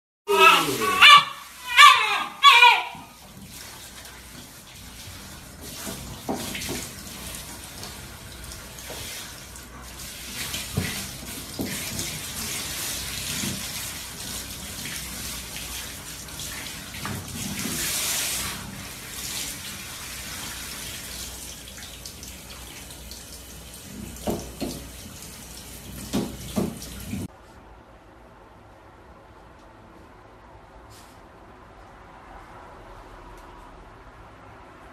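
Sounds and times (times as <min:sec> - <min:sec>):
water spraying from shower head: 0:00.3 - 0:27.3
splashes and knocks: 0:05.6 - 0:08.0, 0:10.4 - 0:12.6, 0:24.1 - 0:24.9, 0:26.0 - 0:27.3.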